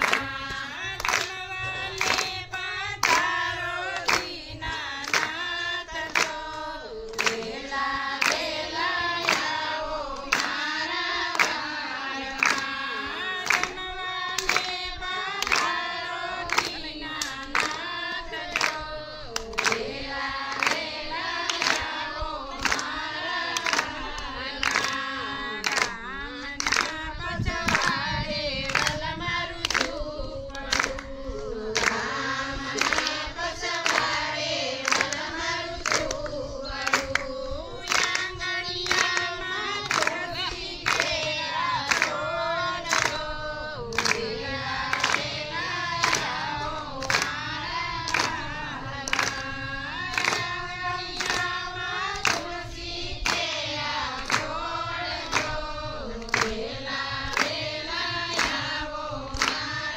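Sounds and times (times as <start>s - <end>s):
hand claps keeping a beat: 0.0s - 59.9s
voices singing a devotional song: 0.0s - 59.9s.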